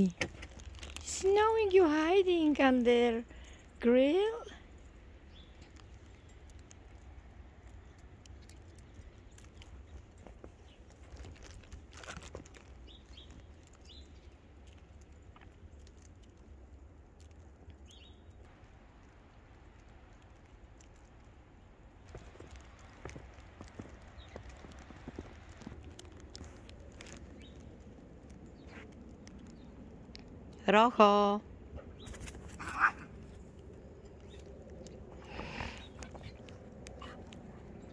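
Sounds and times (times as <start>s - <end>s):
low steady background noise: 0.0s - 37.9s
low rumble: 12.6s - 37.9s.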